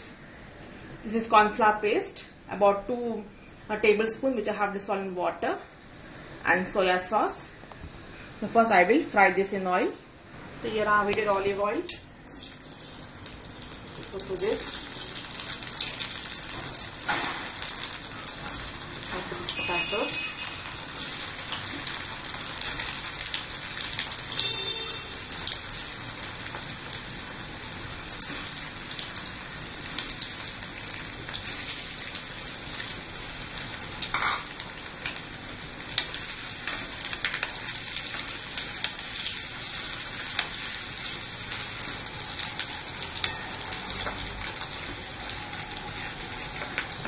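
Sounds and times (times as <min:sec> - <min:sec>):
potatoes sizzling in oil: 0:12.3 - 0:47.0.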